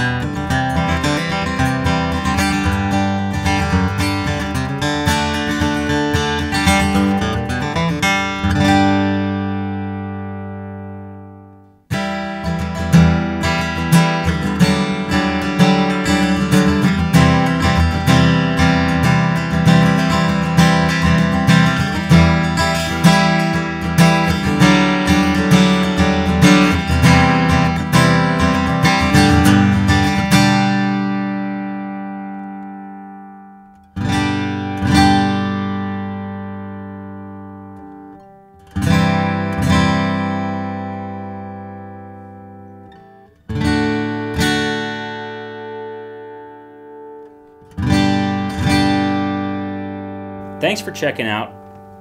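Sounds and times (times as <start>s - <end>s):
acoustic guitar chord ringing: 0.0s - 52.0s
acoustic guitar strum: 0.0s - 52.0s
quickly picked guitar notes: 47.5s - 52.0s.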